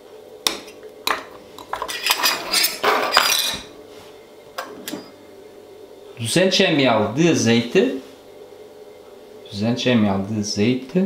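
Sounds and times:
metal ring cutter clinking: 1.9s - 3.6s.

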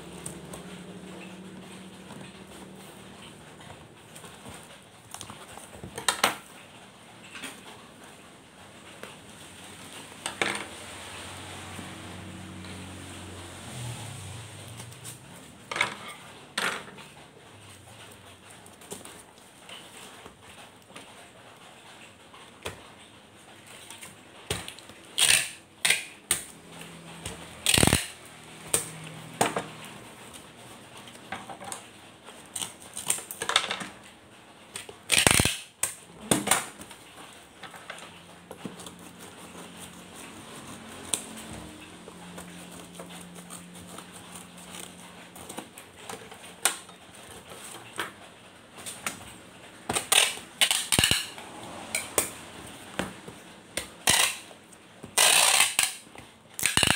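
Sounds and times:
packing tape pulled and torn: 23.8s - 26.5s, 27.6s - 28.9s, 34.8s - 37.0s, 49.9s - 51.4s, 53.8s - 56.9s.

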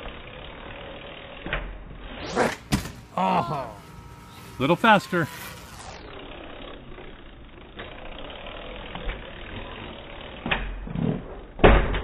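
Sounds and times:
bike wheels thumping on ledge: 1.4s - 3.2s, 10.4s - 12.0s.

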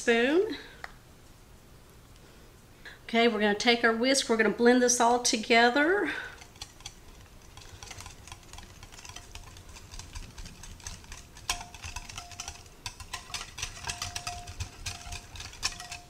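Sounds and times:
whisk clicking against glass bowl: 6.3s - 16.0s.

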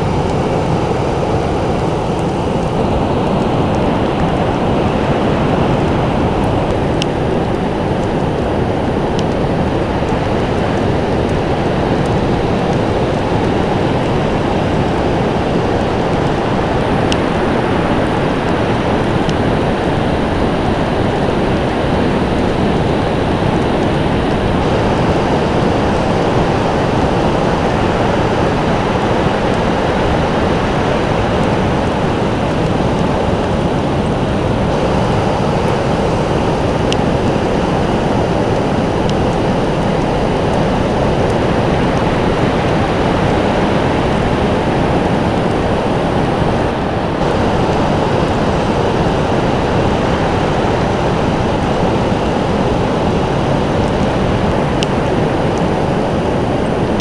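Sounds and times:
ocean surf breaking: 0.0s - 57.0s.

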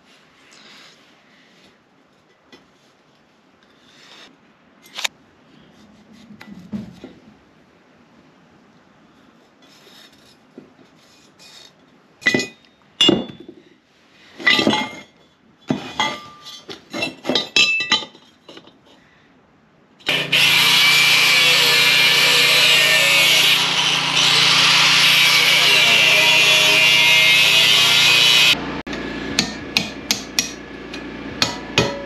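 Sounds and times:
steel tubing clanking and scraping: 14.3s - 19.1s
angle grinder on steel: 20.0s - 29.1s.

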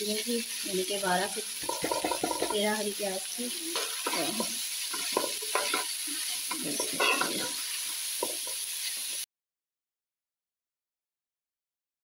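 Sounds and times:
frying sizzle: 0.0s - 9.3s
metal spatula scraping a pan: 1.6s - 2.8s, 3.5s - 9.2s.

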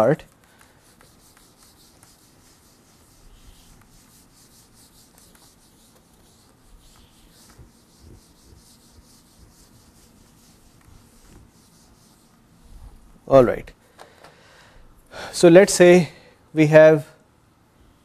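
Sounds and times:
eraser wiping whiteboard: 0.0s - 13.4s.

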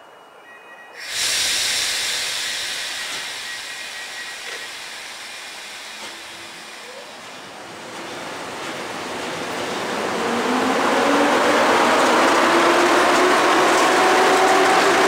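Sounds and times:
compressed air hissing: 1.0s - 7.6s.

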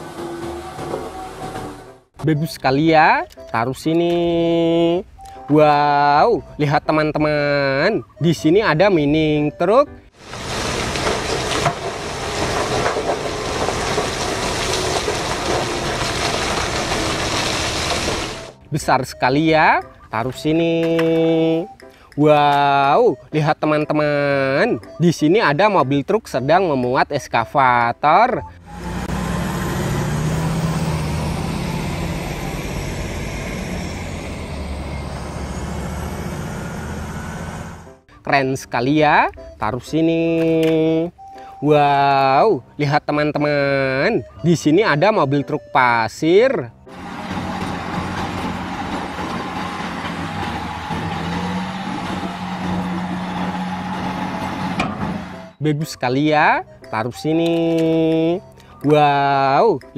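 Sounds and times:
diesel truck engine hum: 0.0s - 5.6s, 6.4s - 20.5s, 28.3s - 38.2s, 43.6s - 55.6s
road noise: 0.0s - 5.6s, 6.4s - 23.6s, 27.8s - 38.1s, 44.0s - 55.6s
falling stones knocking: 10.2s - 18.5s
rock pouring from truck: 10.2s - 18.6s.

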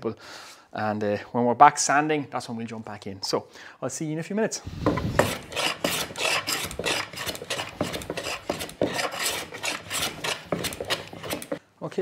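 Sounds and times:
hand plane shaving wood: 4.7s - 11.6s.

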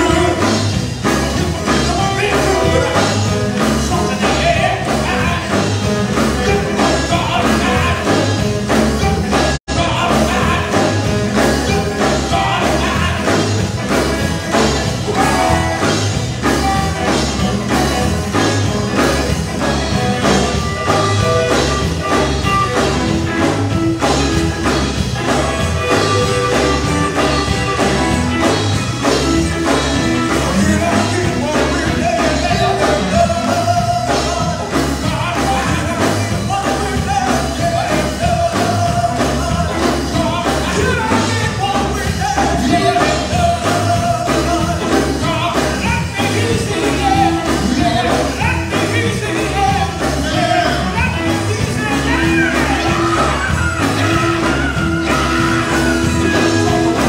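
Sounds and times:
men singing gospel: 0.0s - 0.7s, 1.4s - 16.0s, 29.0s - 57.0s
drum kit: 0.0s - 57.0s
guitar: 0.0s - 57.0s.

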